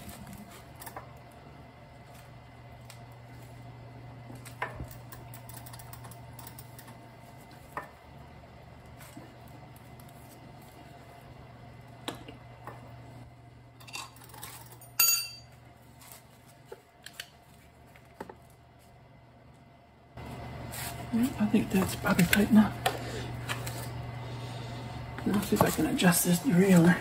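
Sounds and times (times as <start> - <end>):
steady low hum: 0.0 - 27.0
metal tools clinking and knocking: 13.8 - 15.5
ringing metal clank: 15.0 - 15.5.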